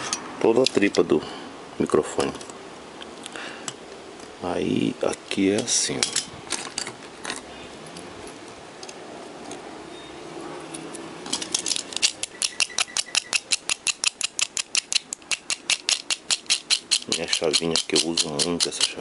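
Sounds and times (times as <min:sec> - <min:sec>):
low background noise: 0:00.0 - 0:19.0
fast sharp mechanical clicks: 0:11.7 - 0:19.0.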